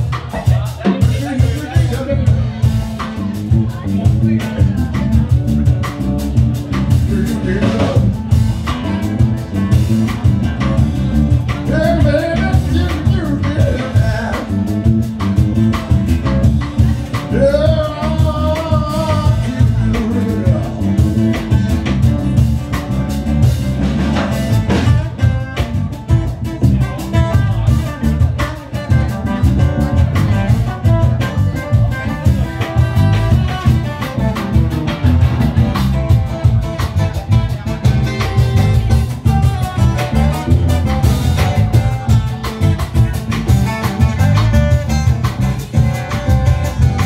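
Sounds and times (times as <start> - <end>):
small band playing live: 0.0 - 47.0
man singing into a microphone: 6.9 - 8.4, 11.5 - 14.9, 16.6 - 22.0.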